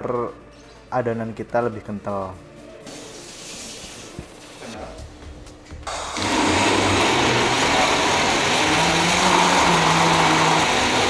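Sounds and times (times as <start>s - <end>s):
blender motor whirring: 5.8s - 11.0s.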